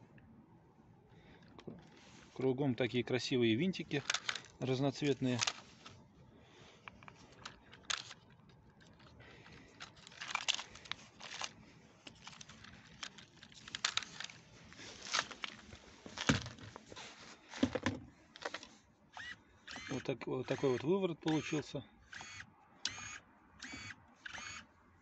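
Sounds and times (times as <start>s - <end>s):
plastic crinkling: 3.8s - 5.9s, 7.2s - 18.8s
handling clicks and scuffs: 6.8s - 18.7s.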